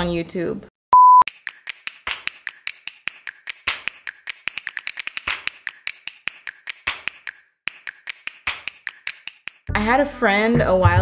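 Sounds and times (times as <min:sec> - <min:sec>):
music of finger-snap-like clicks: 0:01.3 - 0:09.7.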